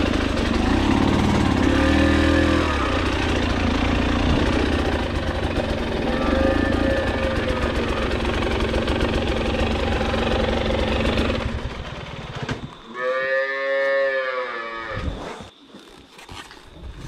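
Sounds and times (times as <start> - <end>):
dirt bike engine running: 0.0 - 12.8
cow mooing: 6.0 - 8.1, 12.9 - 15.2.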